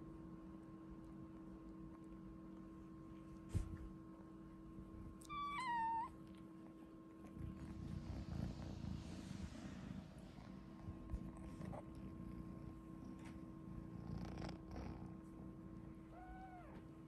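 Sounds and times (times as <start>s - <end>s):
cat purring: 4.8s - 17.0s
cat meowing: 5.2s - 6.2s, 16.1s - 16.8s.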